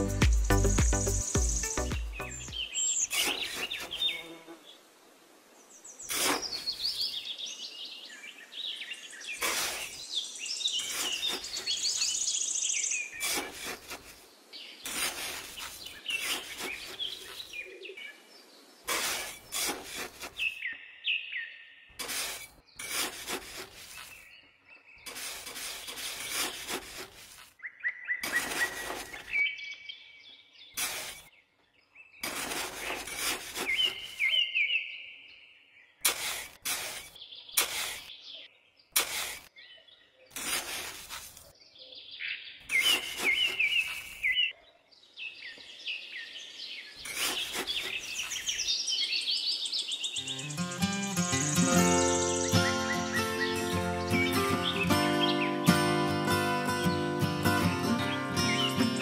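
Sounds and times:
trowel scraping sand: 0.0 - 4.4, 6.0 - 7.1, 9.2 - 10.1, 10.7 - 17.6, 18.8 - 20.7, 21.9 - 24.4, 25.0 - 27.6, 28.2 - 29.4, 30.7 - 31.3, 32.2 - 34.5, 36.0 - 38.2, 38.9 - 39.6, 40.3 - 41.6, 42.7 - 44.4, 47.0 - 48.8, 50.2 - 59.0
birds chirping: 0.0 - 4.8, 5.6 - 59.0.

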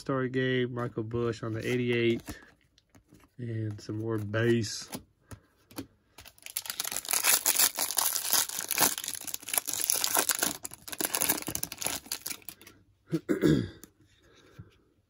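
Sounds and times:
foil wrapper crinkling and tearing: 6.2 - 12.7.

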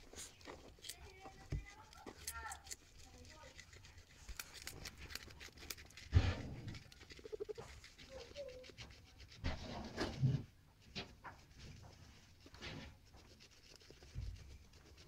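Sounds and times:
guinea pigs crunching carrot: 0.0 - 15.0
rustling thumps: 4.1 - 8.0.

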